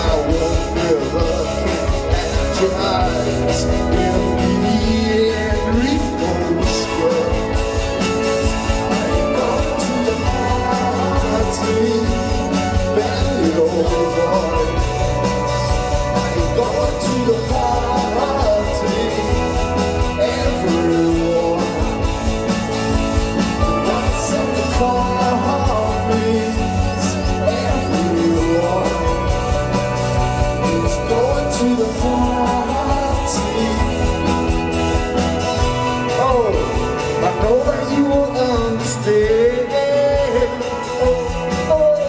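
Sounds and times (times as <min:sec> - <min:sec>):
drums: 0:00.0 - 0:42.0
electric guitar: 0:00.0 - 0:42.0
man singing: 0:00.0 - 0:42.0.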